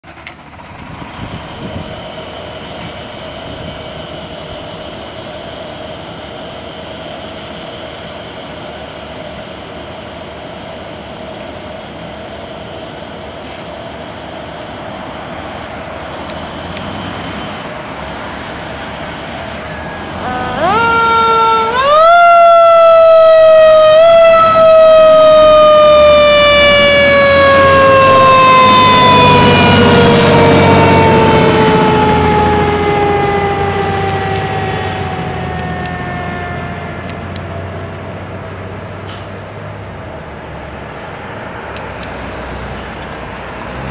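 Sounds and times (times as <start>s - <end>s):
fire engine siren: 0.0s - 6.1s, 15.0s - 38.9s
truck engine rumble: 0.0s - 43.9s.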